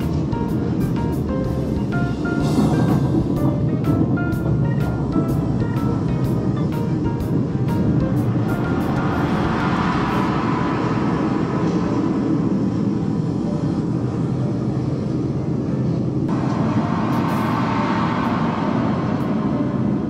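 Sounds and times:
deep rumbling electronic drone: 0.0s - 13.1s.

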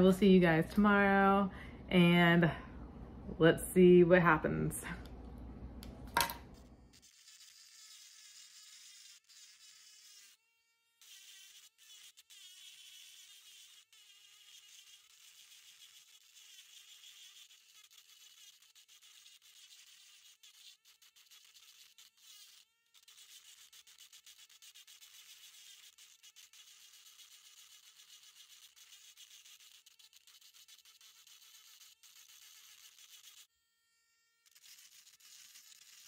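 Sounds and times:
rotary tool grinding whine: 6.5s - 36.0s.

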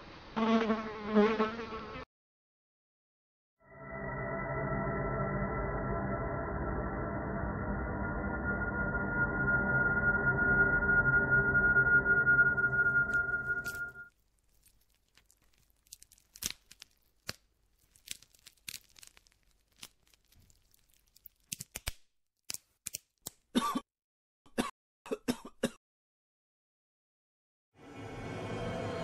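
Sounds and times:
small clicks and crackles: 14.1s - 23.1s.

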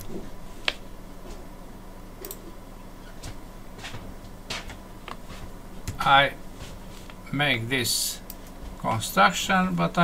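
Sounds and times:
faint low hum: 0.0s - 10.0s
computer mouse clicking: 2.2s - 2.4s.

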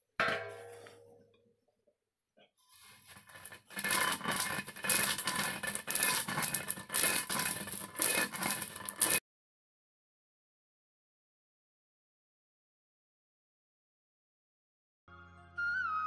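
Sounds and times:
stone roller crushing beans: 2.7s - 9.2s.

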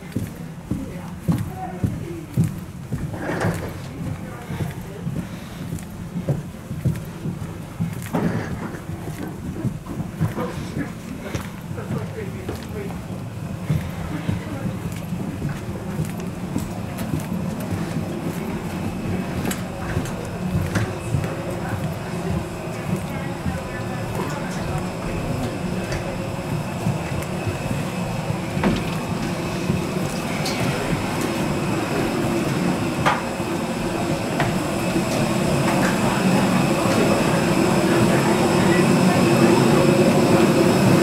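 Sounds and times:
footsteps: 0.0s - 41.0s
low machinery rumble: 0.0s - 41.0s
low mechanical drone: 12.5s - 41.0s.

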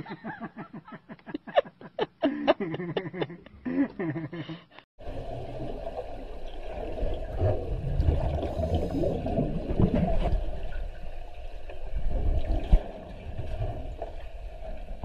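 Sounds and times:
low underwater rumble: 5.0s - 15.0s
underwater rushing and bubbling: 5.0s - 15.0s.

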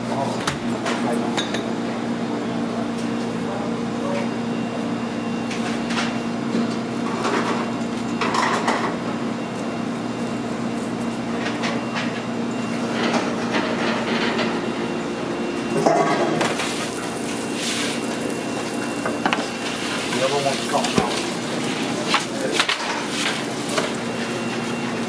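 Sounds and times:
kitchen equipment humming: 0.0s - 25.0s
utensils and trays clinking: 18.6s - 24.7s.

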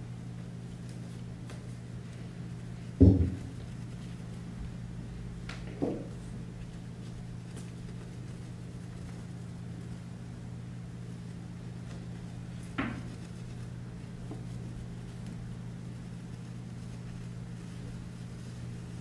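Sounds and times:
low electrical hum: 0.0s - 19.0s
short knock: 3.0s - 3.6s.

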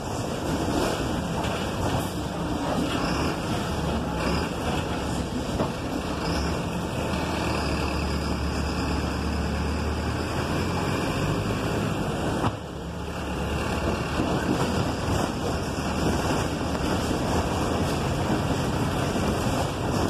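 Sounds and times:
bus engine drone: 0.0s - 20.0s.

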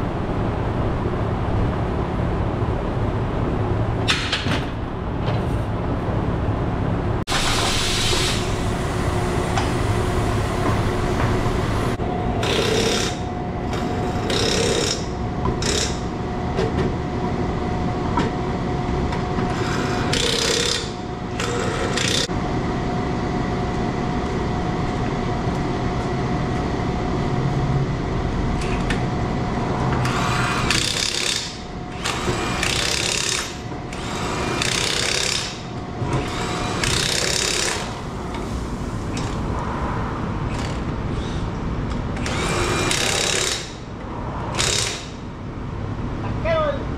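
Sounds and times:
steady mechanical hum: 0.0s - 46.9s
air tool hissing bursts: 7.3s - 8.6s.

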